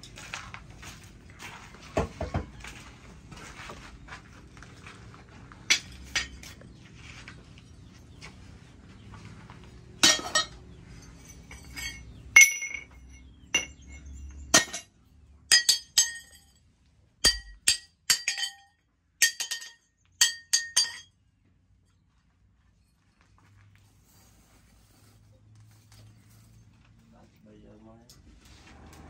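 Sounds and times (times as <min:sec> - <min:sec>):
steel pieces clinking on anvil: 0:05.7 - 0:06.6, 0:10.0 - 0:14.9, 0:15.5 - 0:16.6, 0:17.2 - 0:21.1.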